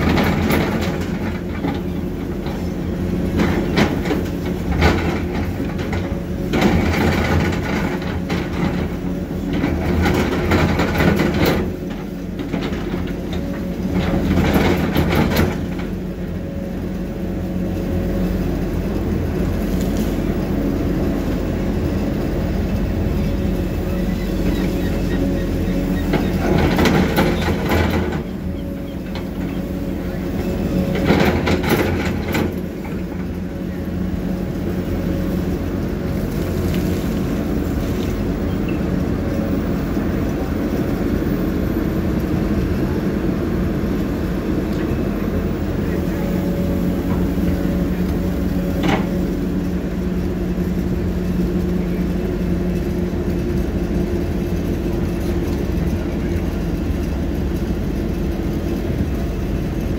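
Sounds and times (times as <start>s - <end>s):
machinery clatter: 0.0s - 59.9s
machinery diesel engine running: 0.0s - 59.9s.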